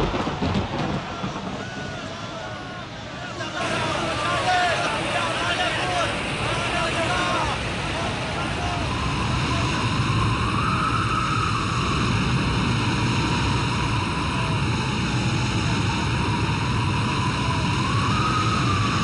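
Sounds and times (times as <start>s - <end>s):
surging waves: 0.0s - 11.6s
heavy wind: 0.0s - 19.0s.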